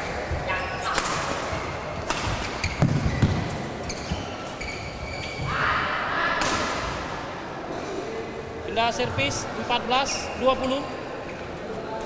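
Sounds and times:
court shoes squeaking: 0:00.0 - 0:05.7, 0:08.9 - 0:11.6
rackets hitting shuttlecock: 0:00.9 - 0:04.1.

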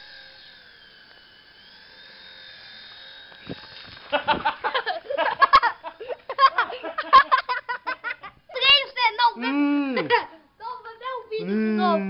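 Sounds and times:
toy helicopter motors whining: 0:00.0 - 0:11.9
children's voices: 0:08.5 - 0:12.0.

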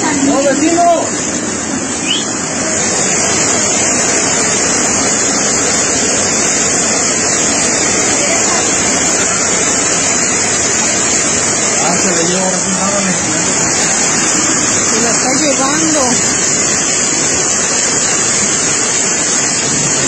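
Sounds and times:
flood water rushing: 0:00.0 - 0:20.0.

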